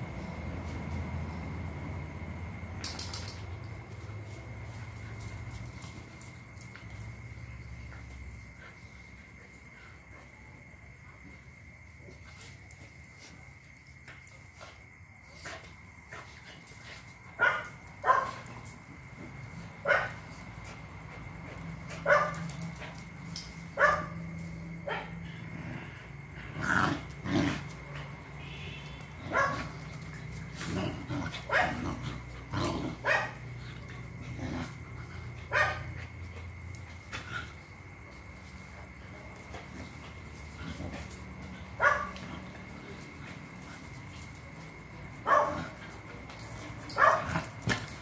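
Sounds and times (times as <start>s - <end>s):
dogs barking and yipping: 17.3s - 18.7s, 19.6s - 25.2s, 27.7s - 37.9s, 39.9s - 48.0s
dogs growling: 24.9s - 28.2s, 29.2s - 38.7s, 39.3s - 48.0s.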